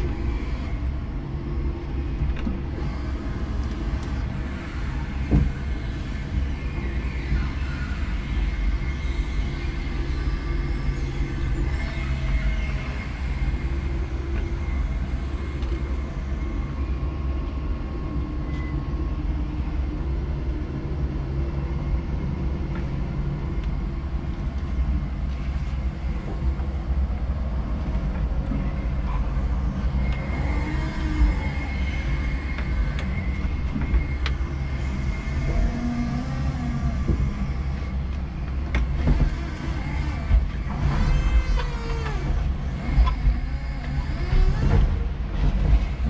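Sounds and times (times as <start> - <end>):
electric motor whine: 1.9 - 16.7, 29.6 - 46.0.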